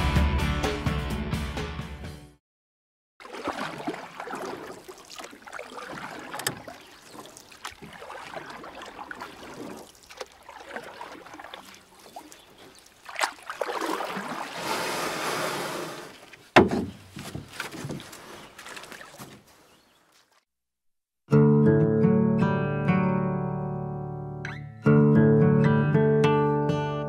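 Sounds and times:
rush of water: 3.2s - 16.4s
paddle swishing and splashing water: 3.2s - 20.4s
light knocks on canoe: 16.6s - 18.1s.

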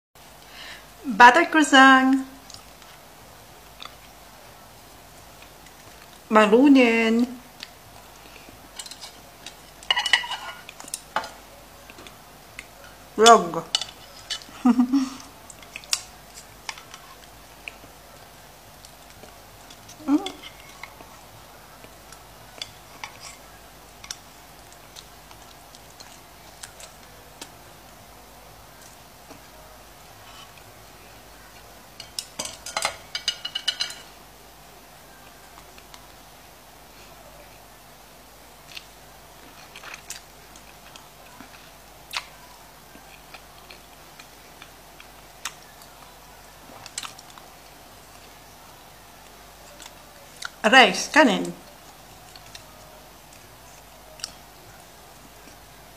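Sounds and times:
person chewing and sucking wetly: 15.5s - 28.0s, 38.6s - 48.4s, 49.2s - 50.6s, 51.7s - 55.6s
chopsticks tapping frying pan: 32.0s - 34.1s
chewing clicks and smacks: 46.8s - 47.7s, 54.2s - 54.4s.

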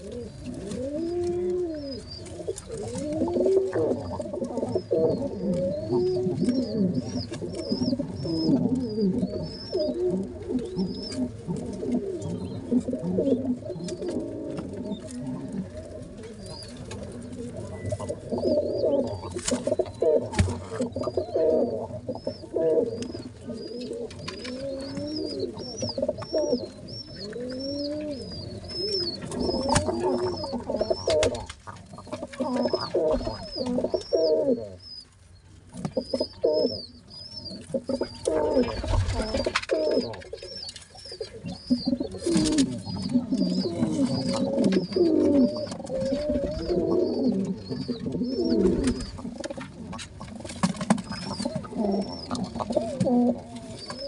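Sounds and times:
wavering pigeon calls: 0.0s - 54.0s
high-pitched squab peeps: 17.7s - 35.1s, 36.0s - 50.0s, 51.0s - 54.0s
birds rustling and bumping: 41.5s - 54.0s.

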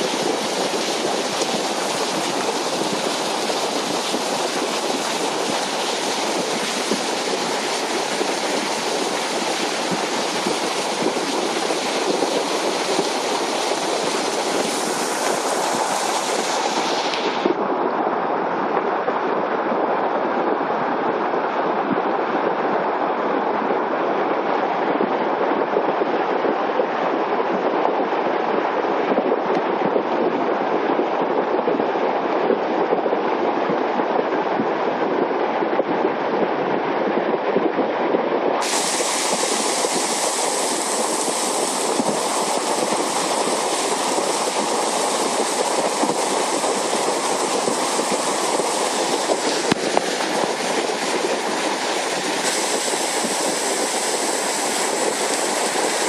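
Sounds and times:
floodwater rushing: 0.0s - 17.6s, 38.6s - 56.0s.

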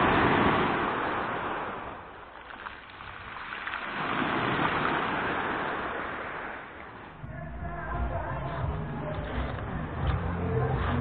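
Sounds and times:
sea waves washing onto shore: 0.0s - 7.2s.

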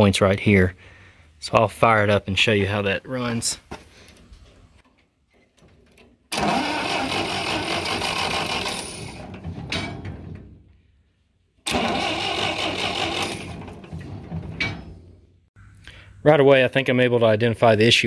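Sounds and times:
engine cranking by starter motor: 6.0s - 10.6s, 11.6s - 15.0s.

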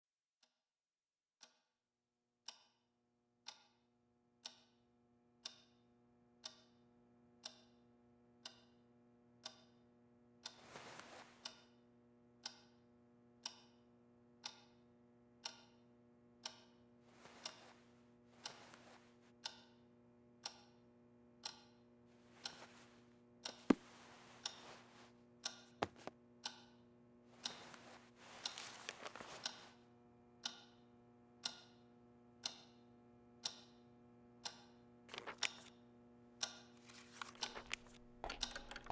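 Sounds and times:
wall clock ticking: 3.4s - 3.8s, 4.4s - 4.8s, 5.4s - 5.8s, 6.4s - 6.8s, 7.4s - 7.8s, 8.4s - 8.8s, 9.4s - 9.8s, 10.4s - 11.8s, 12.4s - 12.8s, 13.4s - 13.8s, 14.4s - 14.8s, 15.4s - 15.8s, 16.4s - 19.8s, 20.4s - 20.8s, 21.4s - 26.8s, 27.4s - 29.8s, 30.4s - 31.8s, 32.4s - 32.8s, 33.4s - 33.8s, 34.4s - 35.7s, 36.4s - 38.9s
soft rustling: 10.6s - 11.5s, 17.1s - 19.3s, 22.2s - 26.1s, 27.4s - 29.8s.

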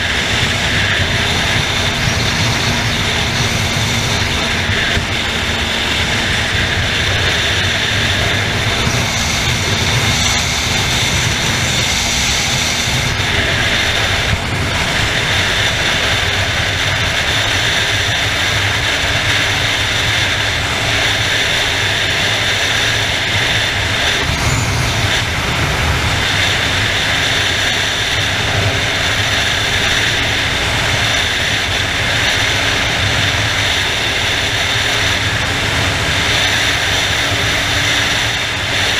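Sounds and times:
motorcycle engine drone: 0.0s - 38.9s
wind rushing over microphone: 0.0s - 38.9s.

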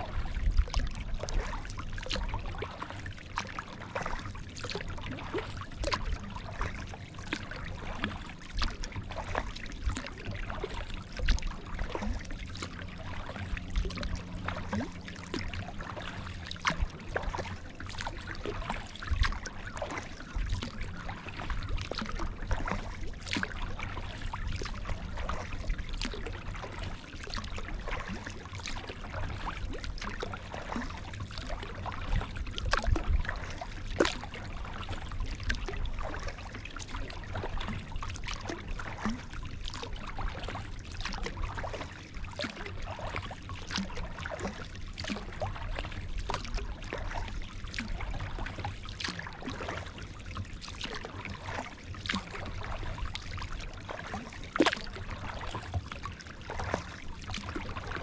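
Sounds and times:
water dripping and trickling: 0.0s - 49.9s, 50.7s - 58.0s
paddle splashing water: 0.0s - 58.0s.

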